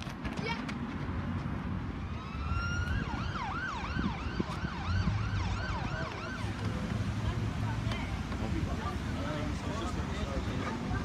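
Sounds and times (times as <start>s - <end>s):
siren wailing and yelping: 2.1s - 6.5s.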